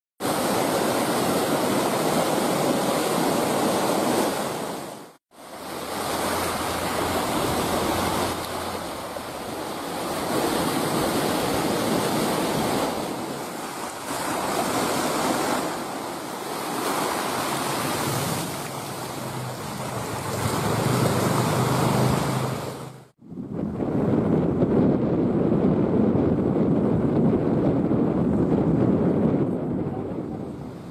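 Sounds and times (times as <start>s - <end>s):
sea waves breaking on rocks: 0.2s - 23.1s
wind on microphone: 6.0s - 30.9s.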